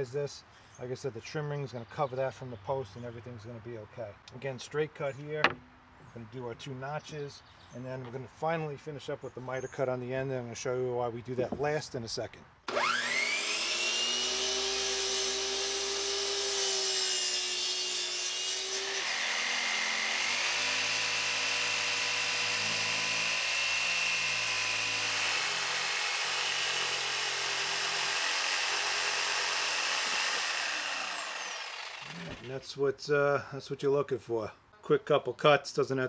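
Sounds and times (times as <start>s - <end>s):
jigsaw cutting deck board: 12.7s - 32.5s
miter saw motor whine: 12.7s - 32.5s.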